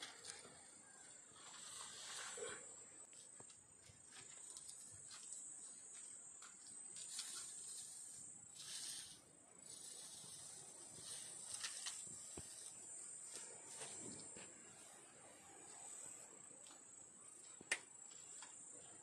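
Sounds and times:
hand scraping through ash: 1.3s - 2.8s, 6.9s - 14.4s.

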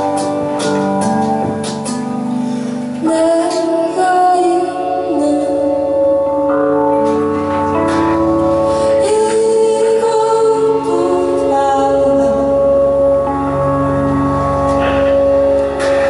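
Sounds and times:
electric keyboard chords: 0.0s - 16.0s
woman singing slow song: 3.0s - 6.6s, 8.7s - 13.3s.

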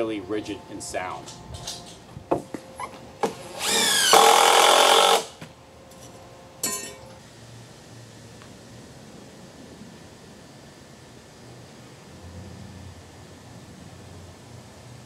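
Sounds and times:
power tool motor whine: 2.7s - 5.4s.

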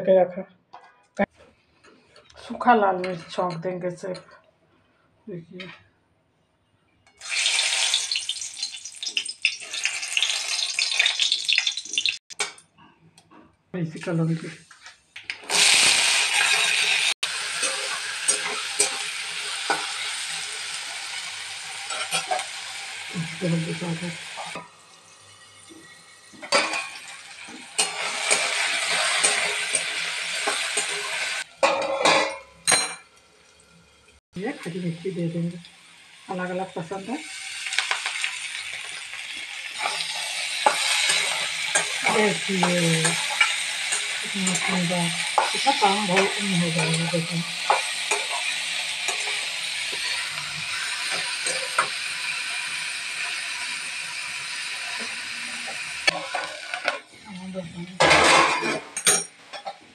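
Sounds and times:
chilies sizzling in hot oil: 7.1s - 12.2s, 15.4s - 59.7s
metal spatula scraping: 26.4s - 32.5s, 39.8s - 51.9s.

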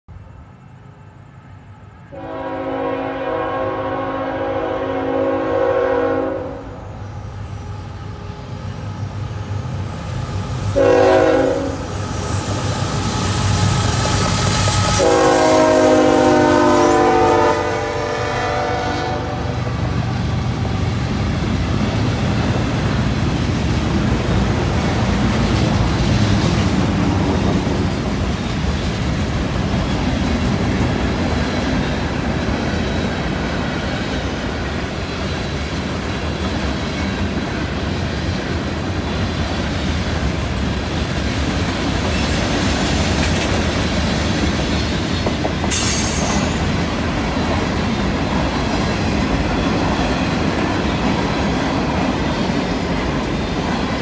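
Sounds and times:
locomotive horn blasts: 2.1s - 6.7s, 10.8s - 11.9s, 14.8s - 19.8s
freight cars rumbling on rails: 6.4s - 54.0s.

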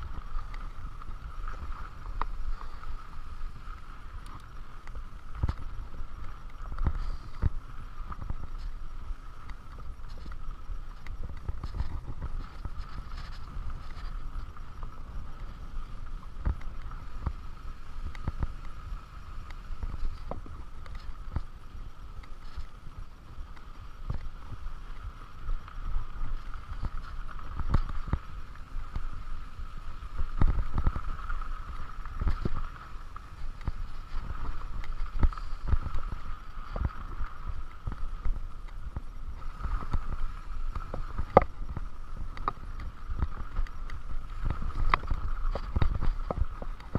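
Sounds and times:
wind rumble on microphone: 0.0s - 46.9s
bike rattling over bumps: 9.6s - 17.4s.

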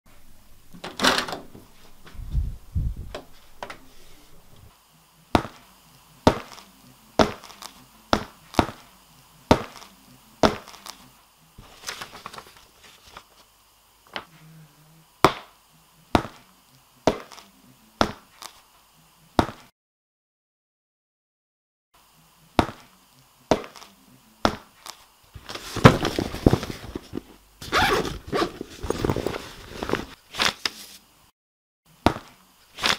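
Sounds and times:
papery rustle: 11.6s - 13.5s, 25.4s - 31.0s.

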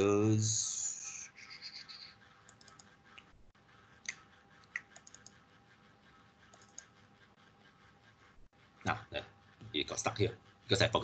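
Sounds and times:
mouse and keyboard clicking: 1.4s - 3.3s, 4.0s - 5.4s, 6.5s - 7.0s.

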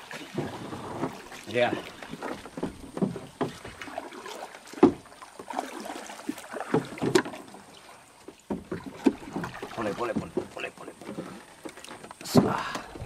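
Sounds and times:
fish thrashing and splashing: 0.0s - 13.0s
knocks against boat: 0.2s - 3.9s, 4.7s - 5.1s, 6.6s - 7.4s, 8.2s - 13.0s.

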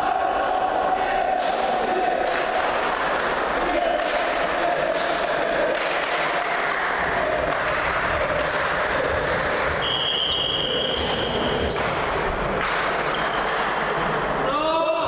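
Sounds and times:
echoing sports hall crowd noise: 0.0s - 15.0s
high whistle note: 9.8s - 11.1s.

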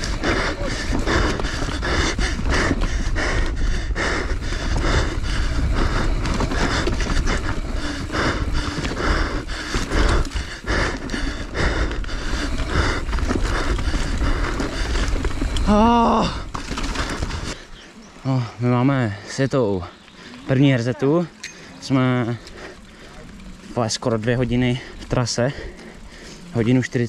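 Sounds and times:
dirt bike engine rumble: 0.0s - 18.3s
heavy rapid breathing: 0.0s - 27.0s
wind: 0.0s - 27.0s.

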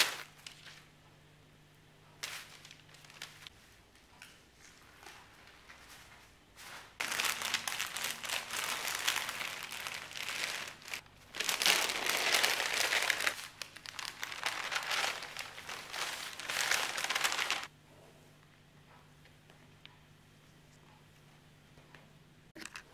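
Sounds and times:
baking paper crinkling: 0.0s - 0.9s, 2.2s - 3.6s, 6.6s - 17.7s.

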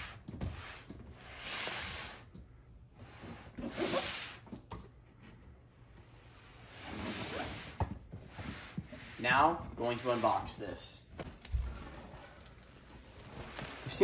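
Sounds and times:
cardboard box scraping on floor: 3.0s - 4.4s, 6.4s - 10.6s, 12.8s - 14.0s.

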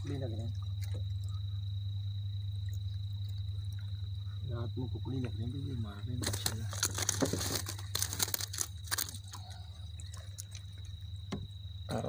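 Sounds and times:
insects chirring: 0.0s - 12.0s
low hum: 0.0s - 12.0s
straw basket rustling: 6.1s - 9.7s.

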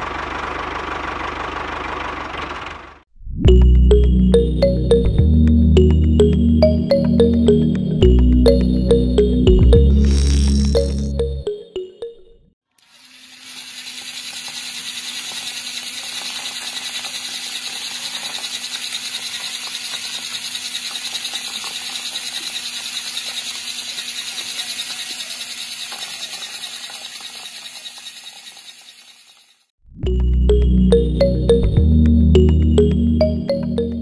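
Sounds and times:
small electric pump motor rattling: 12.7s - 29.7s.

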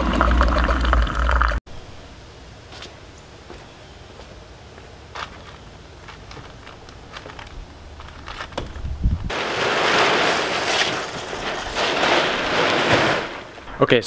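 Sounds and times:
plastic tarp rustling and crinkling: 5.2s - 14.0s.

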